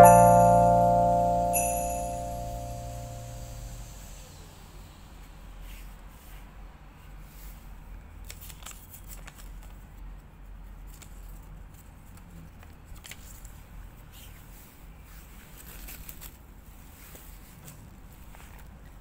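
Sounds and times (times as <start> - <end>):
faint low hum: 0.0 - 4.1
paper cards crinkling and clicking: 8.2 - 9.9, 10.9 - 13.6, 15.6 - 16.4.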